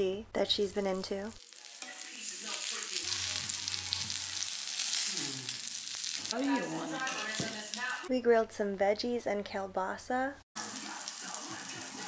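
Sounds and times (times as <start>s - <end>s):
peppers sizzling in grill pan: 0.9s - 8.1s, 10.6s - 12.0s.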